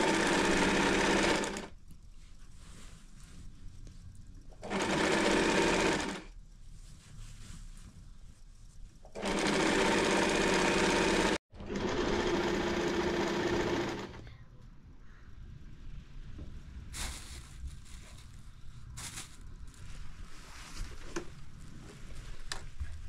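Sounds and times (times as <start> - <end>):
sewing machine stitching: 0.0 - 1.7, 4.6 - 6.3, 9.1 - 14.2.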